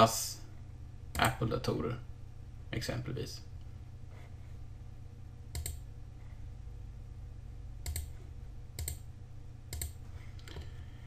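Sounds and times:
steady low hum: 0.0 - 11.0
computer mouse clicks: 5.5 - 5.8, 7.8 - 8.2, 8.8 - 9.0, 9.7 - 10.8.

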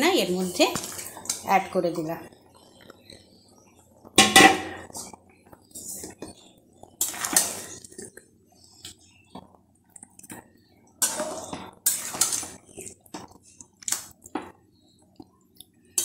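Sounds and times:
metal spoon scraping pan: 11.0 - 12.5.

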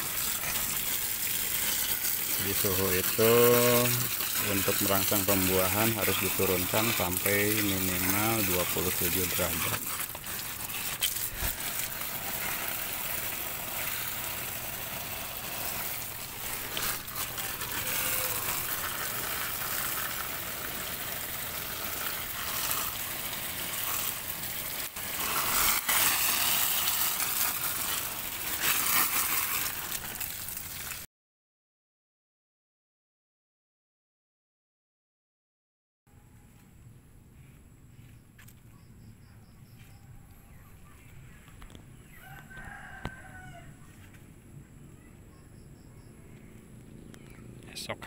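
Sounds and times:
hose water spraying on plastic: 0.0 - 31.1.

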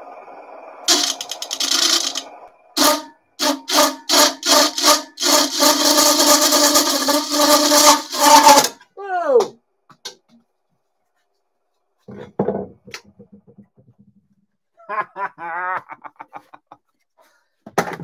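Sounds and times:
lathe gouge scraping wood: 0.9 - 8.8.

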